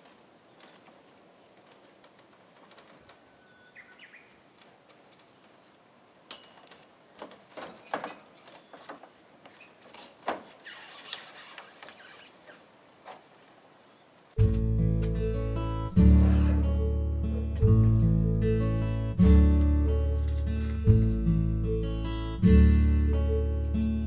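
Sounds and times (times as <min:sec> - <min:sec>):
footsteps on corrugated roof: 0:00.0 - 0:03.4, 0:06.4 - 0:12.3
faint bird chirps: 0:00.0 - 0:05.8
thumps and rattles: 0:07.2 - 0:09.2, 0:09.8 - 0:12.0.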